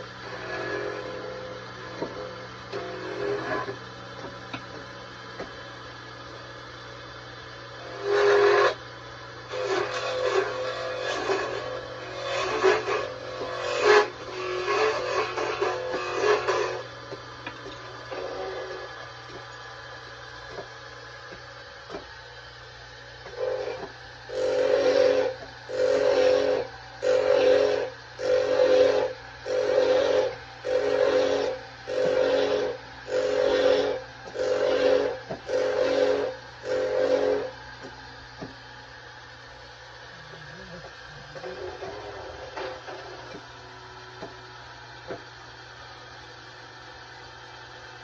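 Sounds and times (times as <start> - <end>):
turning tool scraping wood: 0.0 - 4.4, 7.8 - 8.8, 9.4 - 19.5, 23.3 - 37.6, 40.4 - 43.4
wood lathe humming: 0.0 - 22.0, 22.6 - 44.3
loud grinding buzz: 0.0 - 48.0.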